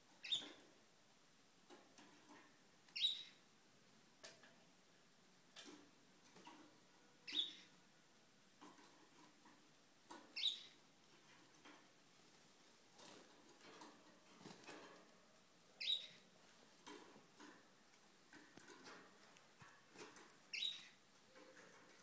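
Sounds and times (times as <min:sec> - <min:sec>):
birds tapping and rustling: 0:00.0 - 0:00.8, 0:01.6 - 0:03.1, 0:05.5 - 0:07.8, 0:08.6 - 0:22.0
canary chirps: 0:00.1 - 0:00.6, 0:02.9 - 0:03.4, 0:07.2 - 0:07.8, 0:10.1 - 0:10.8, 0:15.7 - 0:16.4, 0:20.2 - 0:21.1.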